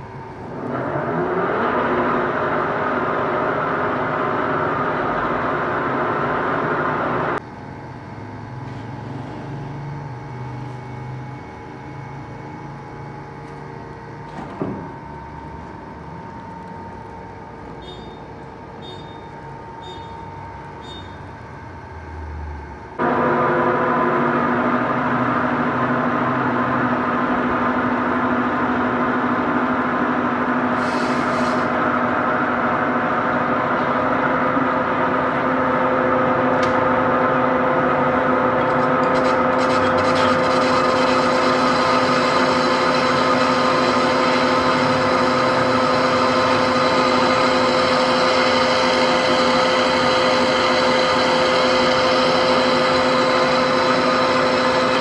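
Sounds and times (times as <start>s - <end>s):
lathe machine hum: 0.0s - 55.0s
cutting tool scraping: 38.7s - 43.2s.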